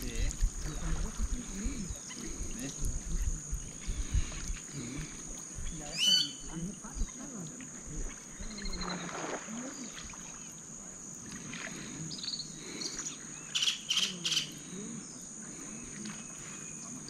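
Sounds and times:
high-pitched insect drone: 0.0s - 17.0s
birds calling: 3.6s - 7.4s, 11.7s - 17.0s
loud sharp bird calls: 5.9s - 6.5s, 12.2s - 14.5s.

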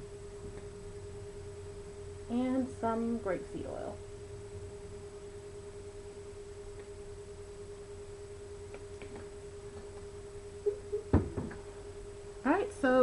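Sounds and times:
steady electrical hum: 0.0s - 13.0s
sharp knock on wood: 11.1s - 11.6s.

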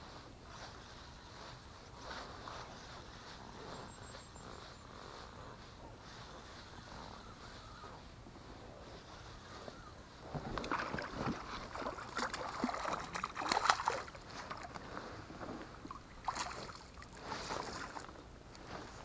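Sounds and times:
fish splashing in water: 10.4s - 15.0s, 15.8s - 18.1s.

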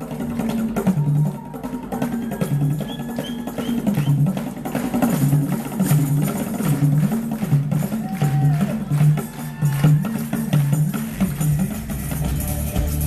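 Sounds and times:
frame drums beating: 0.0s - 13.0s
bass guitar line: 11.5s - 13.0s.

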